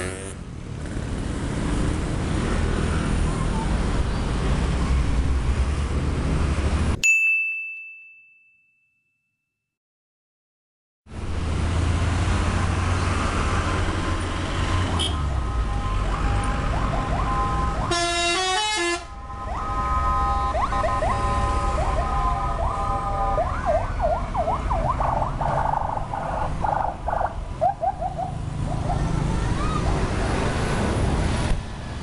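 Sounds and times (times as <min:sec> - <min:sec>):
passing traffic rumble: 0:00.0 - 0:07.0, 0:11.1 - 0:32.0
siren-like wail: 0:14.9 - 0:30.1
multi-tone air horns melody: 0:15.0 - 0:23.4.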